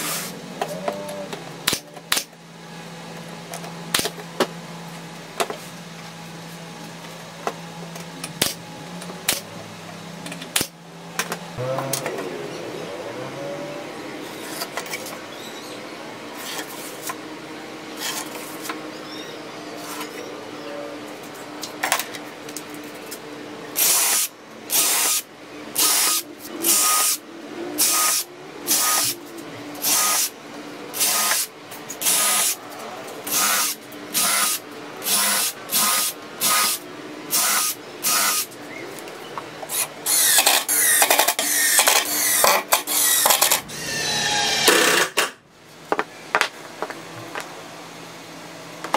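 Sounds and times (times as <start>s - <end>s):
impact driver driving screws: 40.1s - 45.3s.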